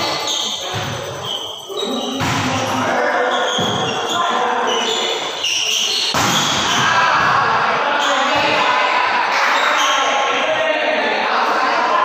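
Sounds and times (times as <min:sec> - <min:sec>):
players' voices and shouts: 0:00.0 - 0:12.0
volleyball being hit: 0:02.2 - 0:02.8, 0:06.1 - 0:07.6.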